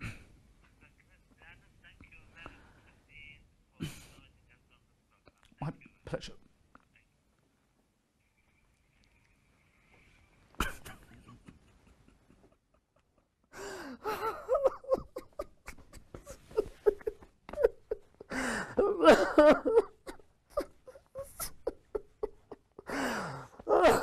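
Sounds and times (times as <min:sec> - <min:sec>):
man sobbing and wailing: 0:10.6 - 0:24.0.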